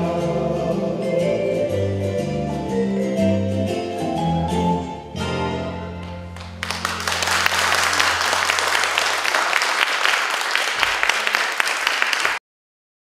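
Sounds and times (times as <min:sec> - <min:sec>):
audience clapping: 0:06.3 - 0:12.4.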